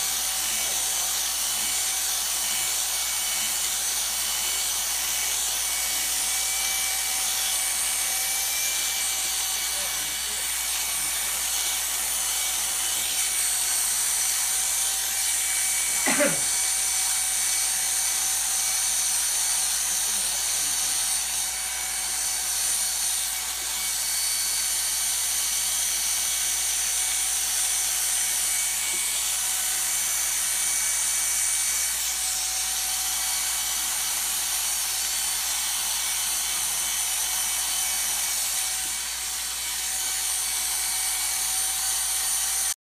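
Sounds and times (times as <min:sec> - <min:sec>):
electric clippers whining: 0:00.0 - 0:42.8.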